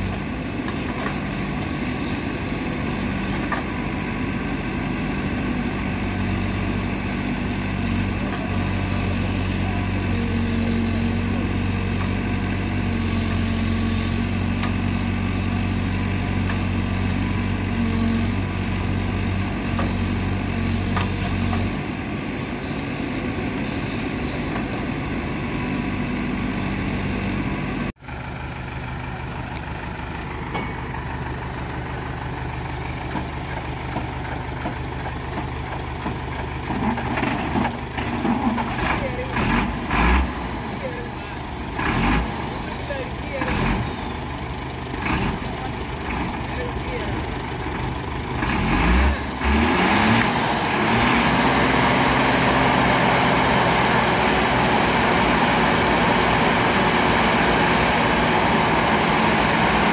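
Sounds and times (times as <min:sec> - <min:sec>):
heavy diesel engine running: 0:00.0 - 0:59.9.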